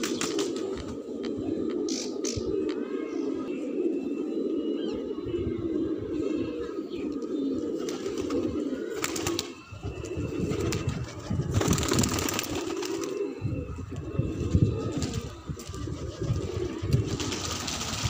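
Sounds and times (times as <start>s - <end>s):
pigeons cooing: 0.0s - 18.0s
pigeon wing flaps: 10.5s - 13.1s, 14.9s - 18.0s.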